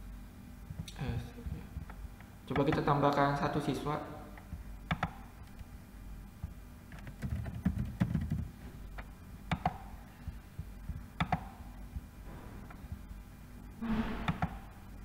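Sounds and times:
low electrical hum: 0.0s - 15.0s
computer mouse clicks: 4.4s - 5.7s, 6.9s - 9.9s, 11.2s - 11.6s.

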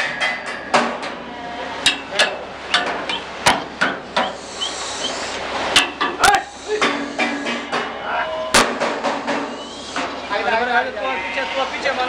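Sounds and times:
sharp knocks and clacks: 8.6s - 10.2s.

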